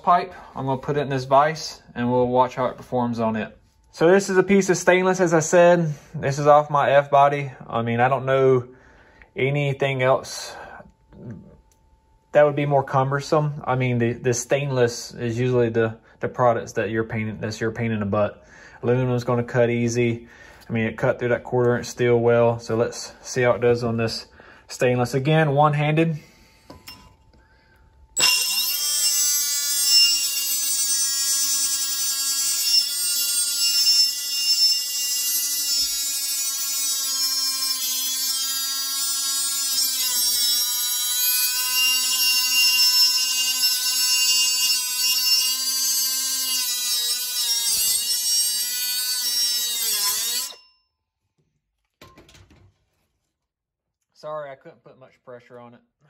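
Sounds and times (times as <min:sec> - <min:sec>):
abrasive wheel cutting steel pipe: 0:28.2 - 0:50.7.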